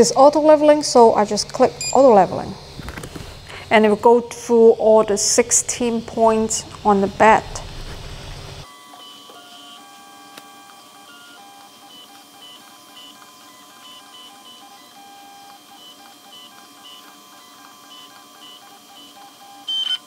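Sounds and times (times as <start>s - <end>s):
stepper motors whining: 0.0s - 20.0s.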